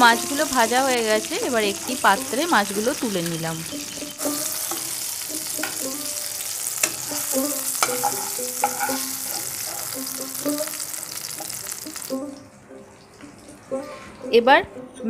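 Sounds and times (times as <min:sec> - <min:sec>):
hot oil sizzling in a frying pan: 0:00.0 - 0:12.2
metal spatula scraping a pan: 0:03.8 - 0:12.1.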